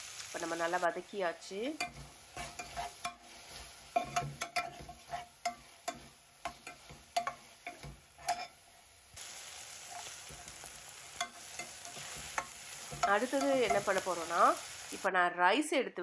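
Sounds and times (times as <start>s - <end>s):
oil sizzling: 0.0s - 15.1s
metal spoon scraping a saucepan: 1.8s - 8.6s.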